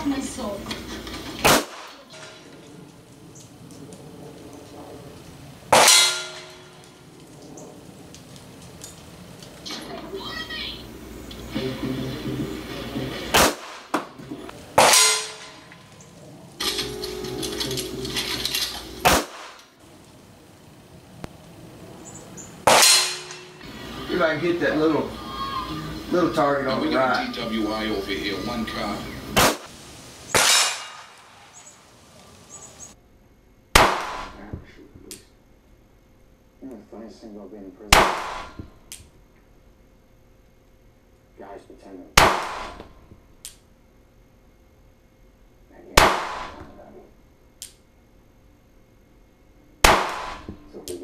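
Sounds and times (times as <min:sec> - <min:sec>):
gunshot: 0:01.4 - 0:02.0, 0:05.7 - 0:06.3, 0:13.3 - 0:14.1, 0:14.8 - 0:15.6, 0:19.0 - 0:19.6, 0:22.6 - 0:23.5, 0:29.4 - 0:29.7, 0:30.3 - 0:31.3, 0:33.7 - 0:34.5, 0:37.9 - 0:38.7, 0:42.2 - 0:42.9, 0:46.0 - 0:46.7, 0:49.8 - 0:50.6
gunshots with room echo: 0:13.3 - 0:14.0, 0:19.0 - 0:19.6, 0:33.8 - 0:34.4, 0:37.9 - 0:38.6, 0:42.2 - 0:42.8, 0:46.0 - 0:46.6, 0:49.8 - 0:50.5.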